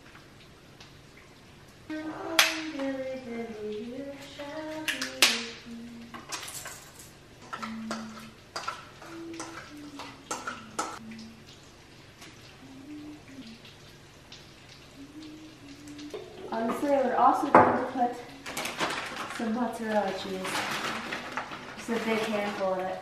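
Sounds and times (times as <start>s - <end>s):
person humming a tune: 1.9s - 6.2s, 7.6s - 8.4s, 9.0s - 11.5s, 12.5s - 13.7s, 14.9s - 17.4s, 18.1s - 18.6s.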